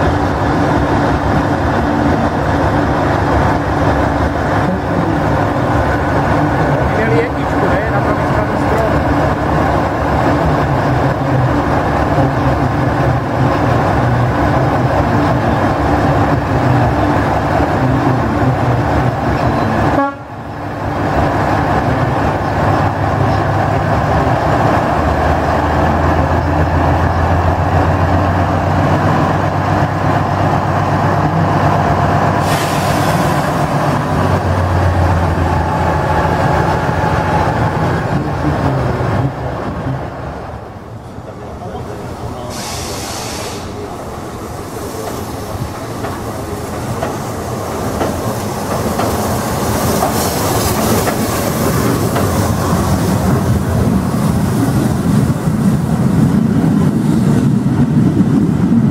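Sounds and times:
diesel locomotive engine running: 0.0 - 58.9
brief hiss: 42.5 - 43.8.

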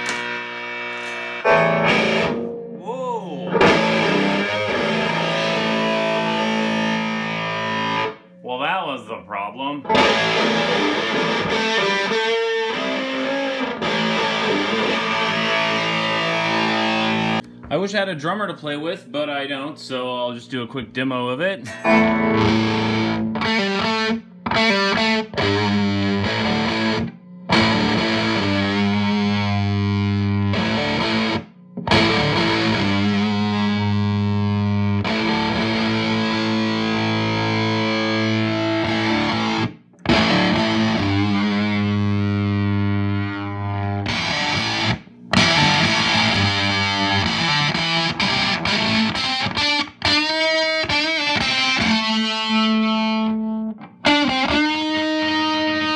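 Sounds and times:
distorted electric guitar: 0.0 - 8.4, 9.8 - 17.6, 21.6 - 55.9.

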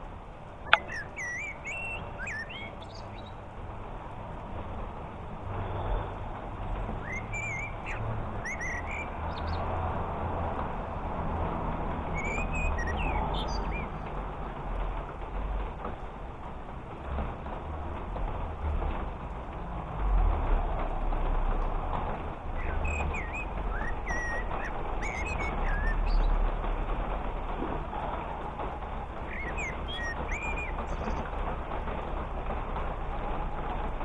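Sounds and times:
rain hiss: 0.0 - 34.0
small birds chirping: 0.6 - 3.5, 6.9 - 9.7, 12.1 - 14.1, 22.6 - 26.4, 29.1 - 31.4.

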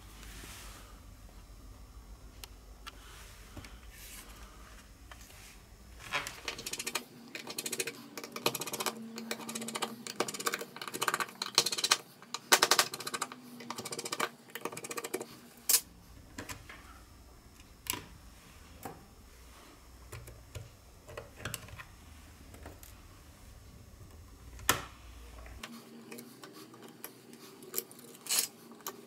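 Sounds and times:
hand tools clicking and scraping: 6.1 - 16.9, 25.4 - 29.0.

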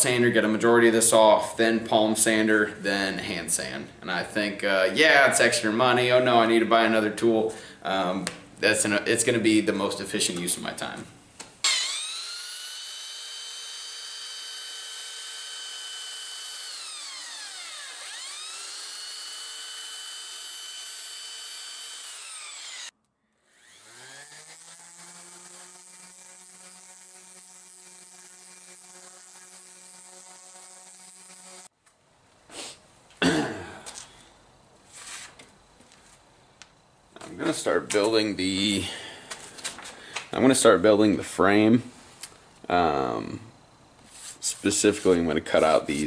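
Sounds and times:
palm sander running: 11.6 - 22.9, 23.5 - 31.7
belt sander whining: 11.6 - 31.7.

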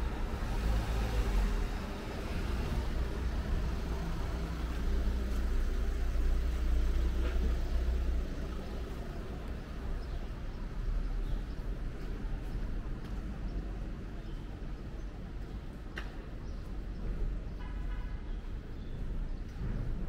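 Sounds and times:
vehicle engine rumbling: 0.0 - 14.4.

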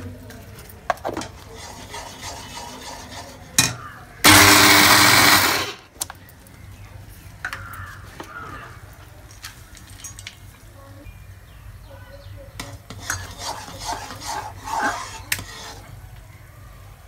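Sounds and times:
mixer grinder grinding peanuts: 4.3 - 5.8.

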